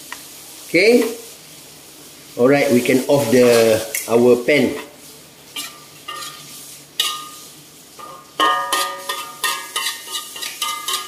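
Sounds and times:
metal spatula scraping wok: 0:04.8 - 0:11.0
wok ringing: 0:05.6 - 0:11.0.

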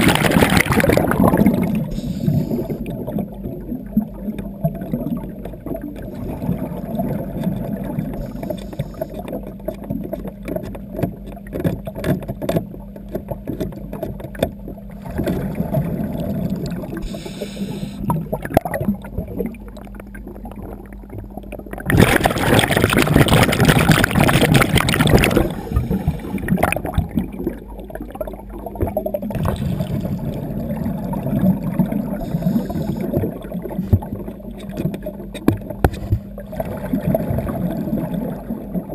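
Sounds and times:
diver exhaling bubbles: 0:00.0 - 0:09.5, 0:14.9 - 0:38.9
low underwater hum: 0:00.0 - 0:38.9.

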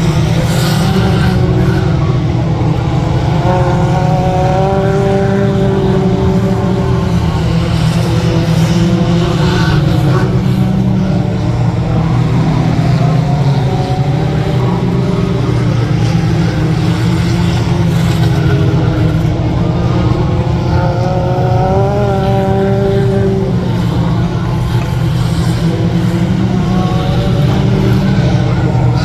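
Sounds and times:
small truck engines racing: 0:00.0 - 0:29.0.

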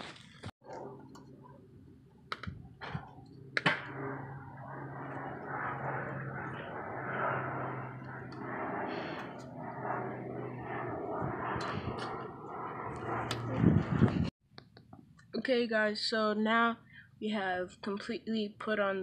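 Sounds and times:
low hum: 0:00.6 - 0:14.3.

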